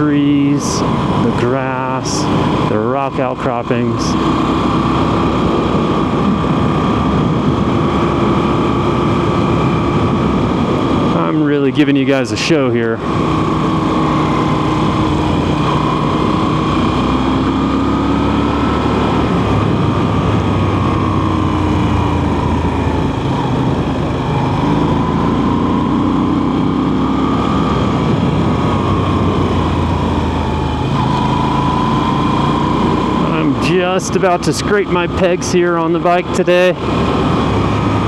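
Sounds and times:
motorcycle engine revving: 0.0 - 38.0
steady rushing noise: 0.0 - 38.0.

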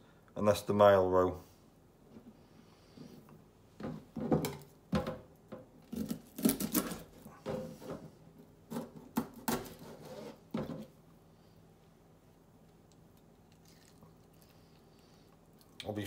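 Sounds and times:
knife crunching through fish bone: 5.9 - 7.2.

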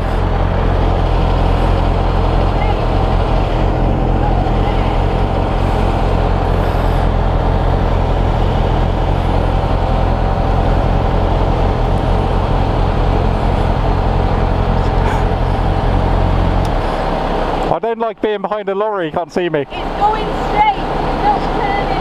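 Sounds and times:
motorcycle engine idling: 0.0 - 17.5.

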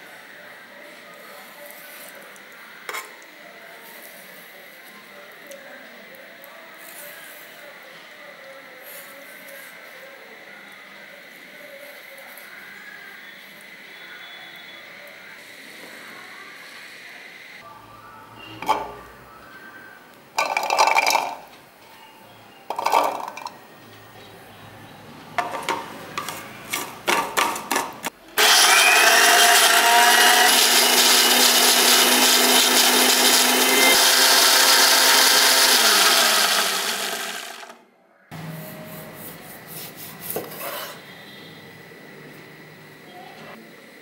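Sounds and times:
mixer grinder running: 28.4 - 37.8.

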